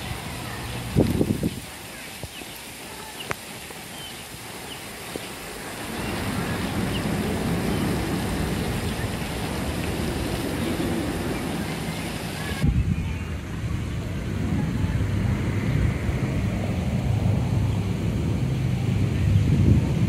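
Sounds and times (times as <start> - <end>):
steady hiss: 0.0 - 12.7
passing road vehicle rumble: 5.5 - 12.6, 13.2 - 20.0.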